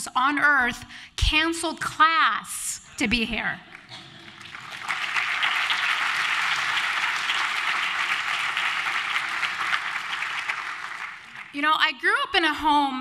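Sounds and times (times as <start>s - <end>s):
audience applauding: 3.8s - 11.6s.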